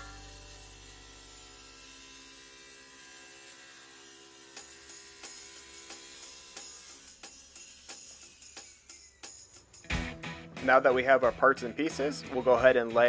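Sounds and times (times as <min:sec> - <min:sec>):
soft background music: 0:08.7 - 0:13.0.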